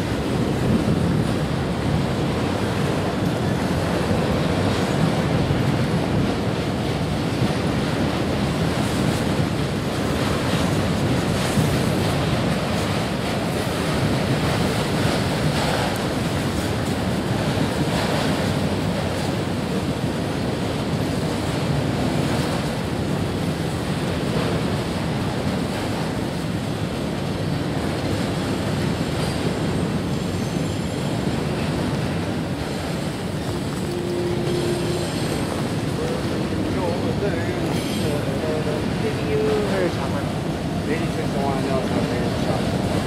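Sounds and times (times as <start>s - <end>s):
freight train wheels rumbling: 0.0s - 43.0s
wind on microphone: 0.0s - 43.0s.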